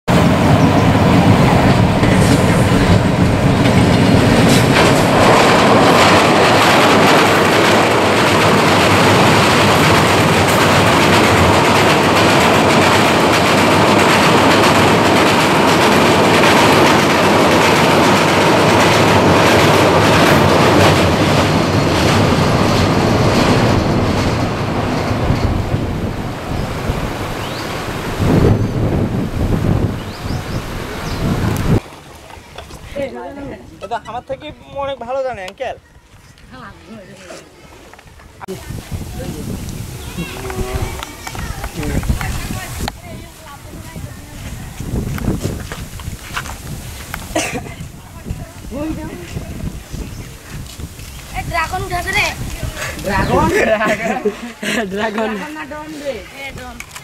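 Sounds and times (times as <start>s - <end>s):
train wheels clattering on bridge: 0.1s - 27.9s
diesel locomotive engine drone: 0.1s - 31.8s.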